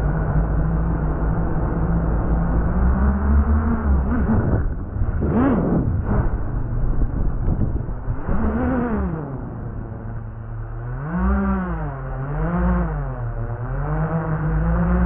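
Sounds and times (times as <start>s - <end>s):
drone motors and propellers whining: 0.0s - 15.0s.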